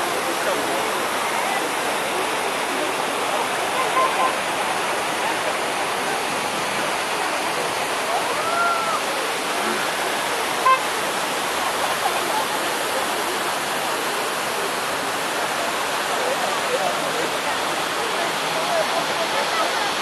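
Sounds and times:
faint distant voices: 0:00.0 - 0:20.0
outdoor crowd hubbub: 0:00.0 - 0:20.0.

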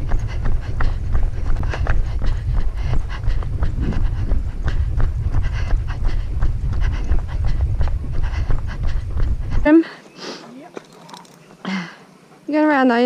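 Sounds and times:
steady low rumble: 0:00.0 - 0:09.9
dogs panting: 0:00.0 - 0:13.0
footsteps on a trail: 0:00.0 - 0:13.0.

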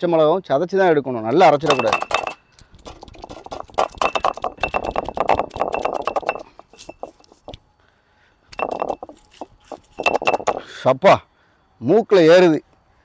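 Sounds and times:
stone roller knocking and crunching: 0:01.6 - 0:07.6, 0:08.6 - 0:10.7.

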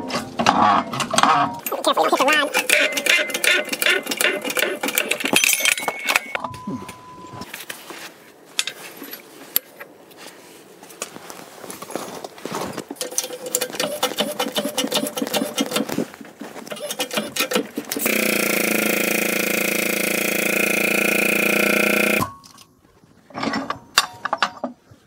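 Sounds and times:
pump buzzing: 0:16.7 - 0:22.4.

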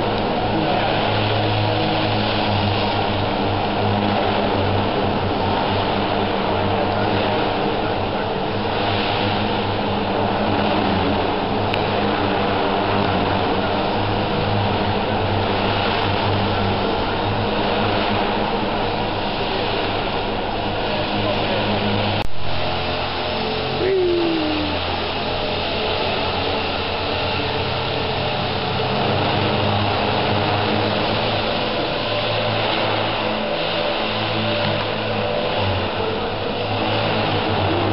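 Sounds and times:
helicopter rotor whirring: 0:00.0 - 0:37.9
model helicopter motor whine: 0:22.7 - 0:37.9.

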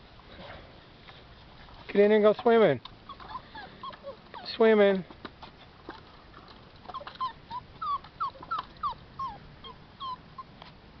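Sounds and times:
puppies whimpering: 0:03.0 - 0:04.9, 0:05.7 - 0:10.6.

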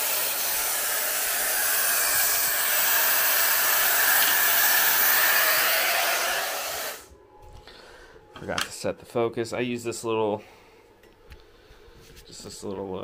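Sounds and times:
compressed air hissing: 0:00.0 - 0:07.1.

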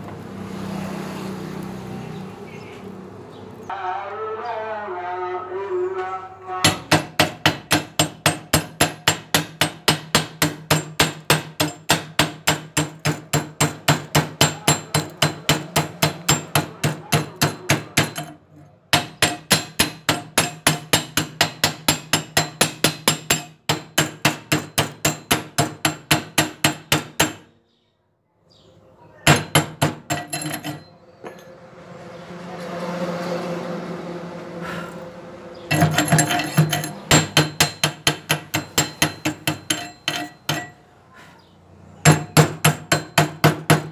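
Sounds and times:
hammer striking steel: 0:06.6 - 0:27.5, 0:29.3 - 0:31.5, 0:35.7 - 0:40.8, 0:42.0 - 0:43.9.

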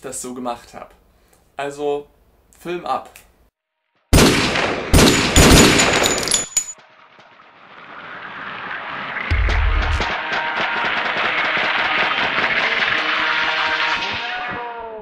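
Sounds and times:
gunshots: 0:04.1 - 0:06.4
deep rumble: 0:09.2 - 0:10.1.

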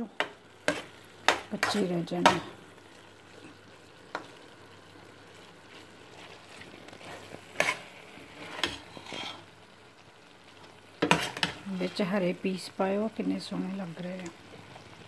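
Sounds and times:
meat sizzling in a pan: 0:00.0 - 0:15.0
spatula scraping a pan: 0:00.6 - 0:01.9, 0:05.4 - 0:09.5, 0:11.0 - 0:12.1.

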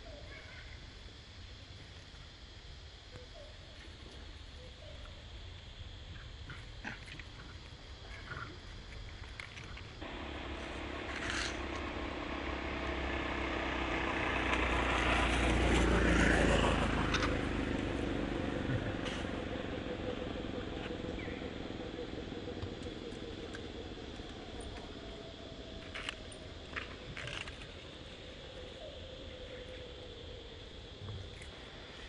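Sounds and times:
vehicle passing by: 0:10.0 - 0:25.0.

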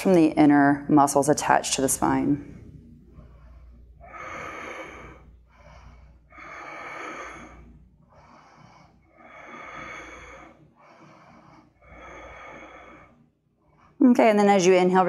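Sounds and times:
woman breathing slowly: 0:02.3 - 0:14.0.

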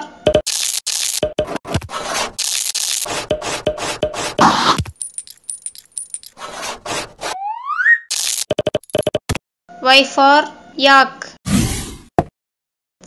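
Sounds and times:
marker scribbling on paper: 0:06.4 - 0:07.3.

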